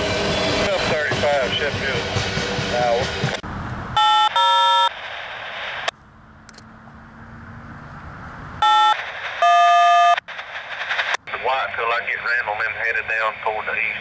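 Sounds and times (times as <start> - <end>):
electronic tone bursts: 4.0 - 5.0, 8.6 - 10.7
radio static hiss: 4.4 - 6.0, 8.6 - 14.0.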